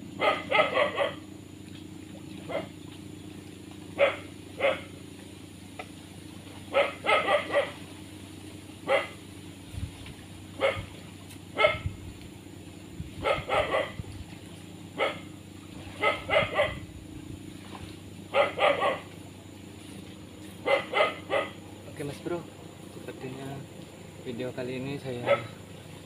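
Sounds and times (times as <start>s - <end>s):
dog barking: 0.2s - 1.3s, 2.5s - 2.7s, 4.0s - 4.9s, 6.7s - 7.8s, 8.8s - 9.2s, 10.6s - 10.9s, 11.6s - 11.9s, 13.2s - 14.0s, 15.0s - 15.3s, 16.0s - 16.8s, 18.3s - 19.1s, 20.6s - 21.6s, 25.2s - 25.6s.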